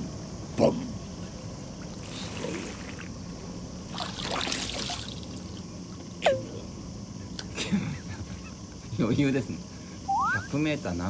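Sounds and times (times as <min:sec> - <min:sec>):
water splashing: 0:03.9 - 0:05.6.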